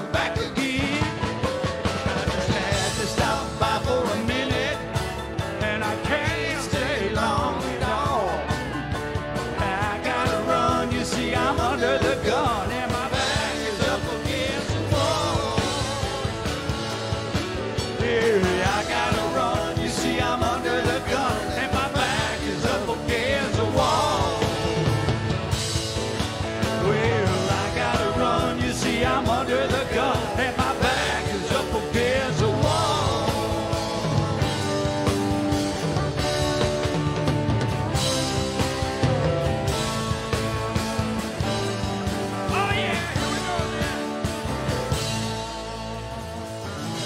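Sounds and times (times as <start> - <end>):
drum kit: 0.0 - 47.0
electric guitar: 0.0 - 47.0.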